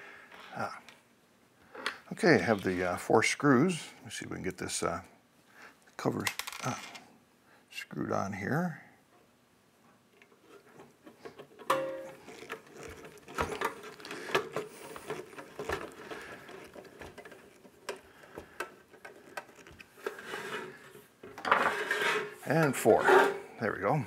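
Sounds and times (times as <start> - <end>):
metal clicks and scrapes: 10.2 - 23.5.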